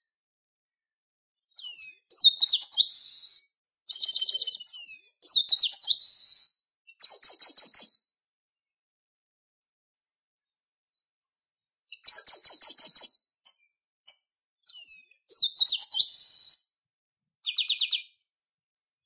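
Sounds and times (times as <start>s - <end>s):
bird singing whistled notes and trills: 1.5s - 8.1s, 10.0s - 16.7s, 17.4s - 18.5s.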